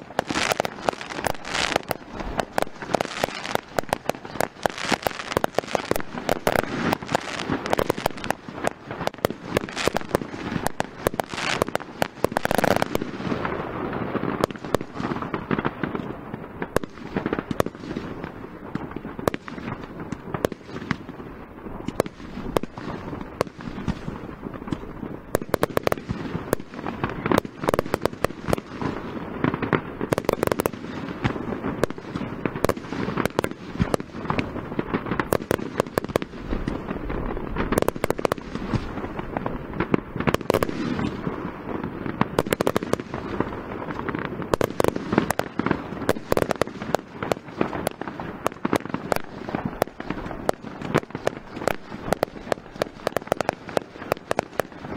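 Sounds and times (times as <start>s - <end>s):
fireworks bangs: 0.0s - 54.9s.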